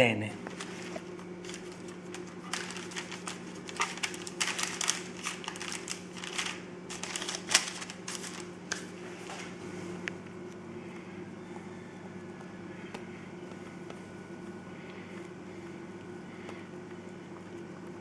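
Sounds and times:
steady low hum: 0.0s - 18.0s
baking paper crinkling: 0.4s - 9.6s.

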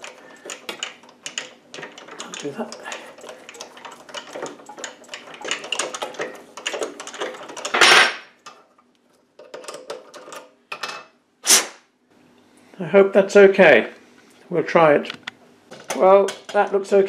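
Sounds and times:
lathe clicking and rattling: 0.0s - 8.6s.

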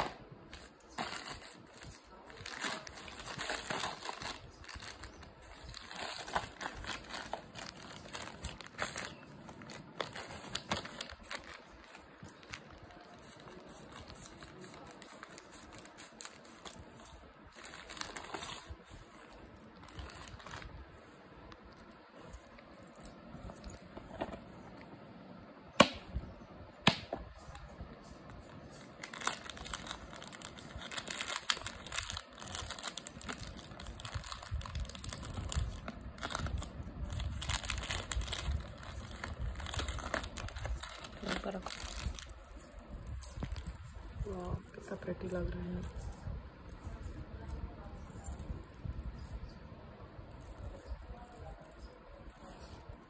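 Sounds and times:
plastic packaging crinkling: 0.0s - 24.6s, 28.3s - 46.1s.

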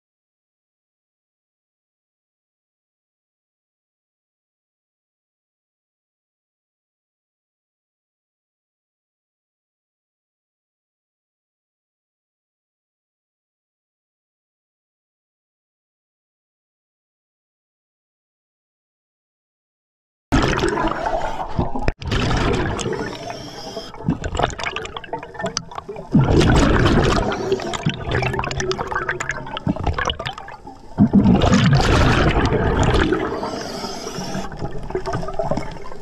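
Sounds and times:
exhaled bubbles rushing: 20.4s - 36.0s
diver breathing through regulator: 22.8s - 24.0s, 26.7s - 28.0s, 33.0s - 35.4s.

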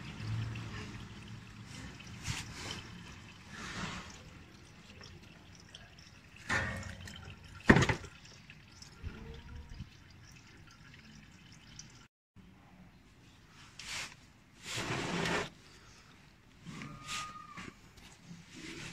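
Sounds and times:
oil dripping and trickling: 0.0s - 12.1s.

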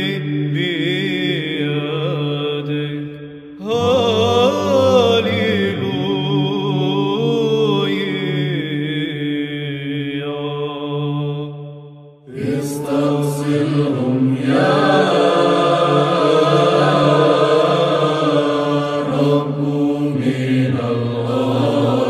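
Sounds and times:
choir chanting: 12.2s - 22.0s.

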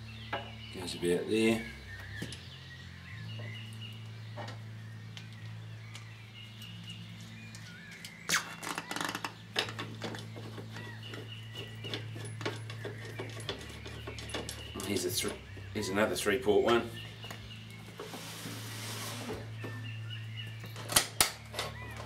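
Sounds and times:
birds chirping: 0.0s - 22.0s
metal clicks and rattles: 8.4s - 15.5s.

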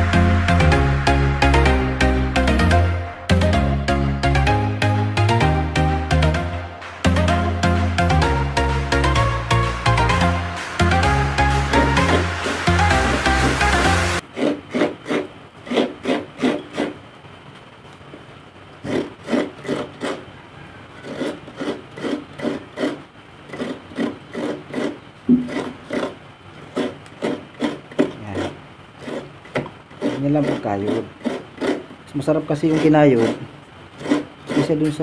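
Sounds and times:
coconut grating rasping strokes: 9.6s - 17.0s, 18.8s - 35.0s.

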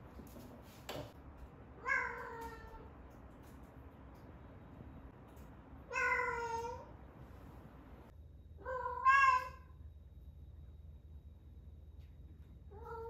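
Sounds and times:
cat yowling: 8.6s - 9.7s.

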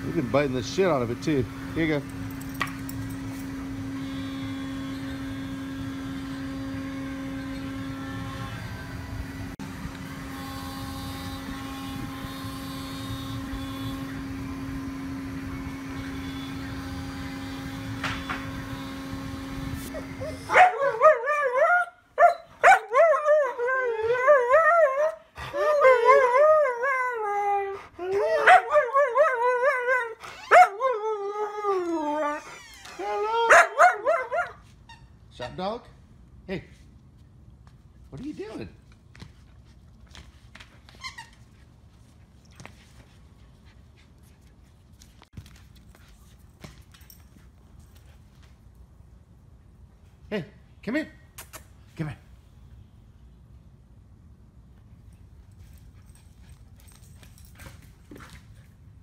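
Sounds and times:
dog howling: 20.0s - 34.6s.

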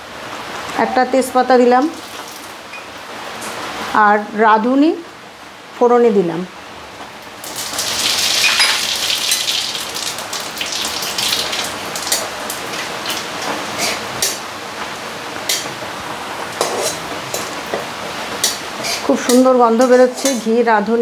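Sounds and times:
spices sizzling in hot oil: 1.4s - 3.8s, 7.0s - 21.0s
spatula stirring spices: 16.6s - 17.6s, 18.4s - 20.6s.

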